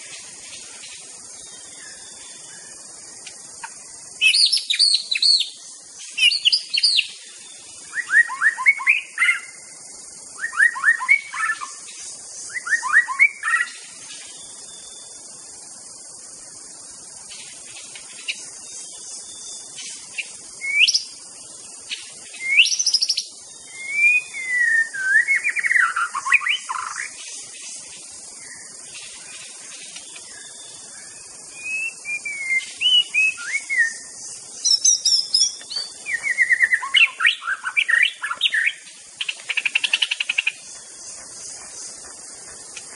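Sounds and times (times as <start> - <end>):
faint high hiss: 0.0 - 42.9
bird singing whistled phrases: 4.2 - 5.6, 7.9 - 9.6, 10.4 - 11.8, 12.5 - 13.8, 20.6 - 21.1, 22.4 - 27.1, 31.6 - 38.8.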